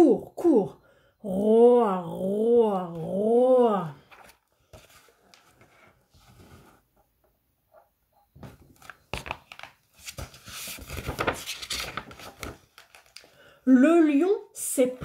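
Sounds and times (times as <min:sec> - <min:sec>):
pages turning: 0:04.0 - 0:06.8, 0:08.7 - 0:13.4.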